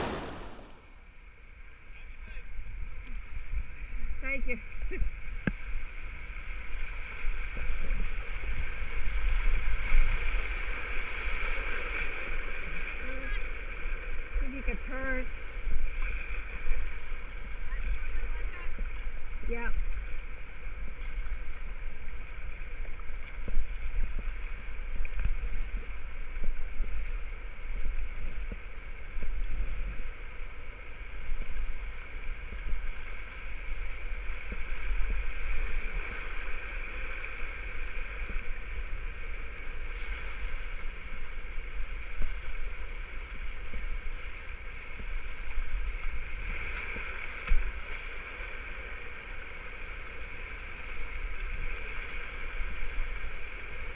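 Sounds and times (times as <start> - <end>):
river rapids rushing: 0.0 - 0.8
paddle splashes: 0.0 - 0.9, 4.7 - 53.9
steady low rumble: 0.0 - 0.9.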